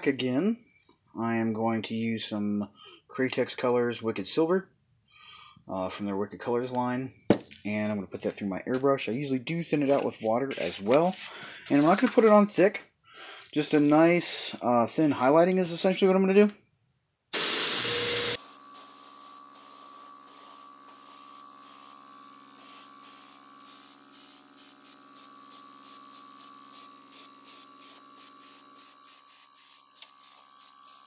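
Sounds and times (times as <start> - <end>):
airbrush spraying with a hiss: 17.4 - 31.0
compressor humming: 17.4 - 31.0.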